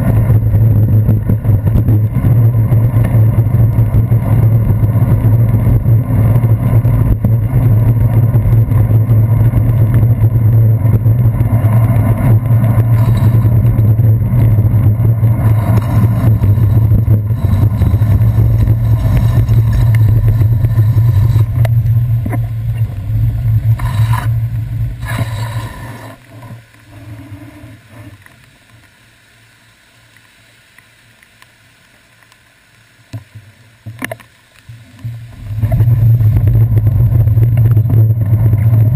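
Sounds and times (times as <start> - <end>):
wind noise: 0.0 - 26.2, 35.0 - 38.9
bicycle road rumble: 0.0 - 38.9.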